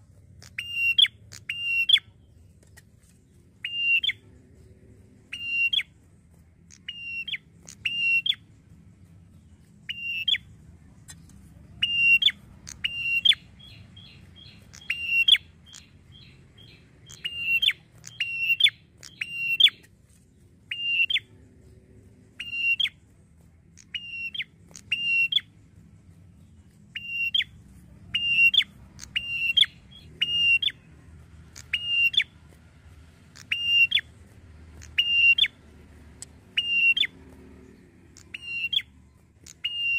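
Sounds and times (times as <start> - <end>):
bird whistling sharp notes: 0.4 - 2.1, 3.6 - 4.2, 5.3 - 5.9, 6.7 - 8.4, 9.9 - 10.5, 11.8 - 19.8, 20.7 - 21.3, 22.4 - 23.0, 23.8 - 25.5, 26.9 - 27.5, 28.1 - 30.8, 31.6 - 32.3, 33.4 - 34.1, 34.8 - 35.6, 36.5 - 37.2, 38.2 - 38.9, 39.5 - 39.9
bird chattering run: 11.1 - 19.9, 23.7 - 25.5, 26.9 - 30.8, 31.5 - 32.3, 33.2 - 35.6, 36.2 - 39.9.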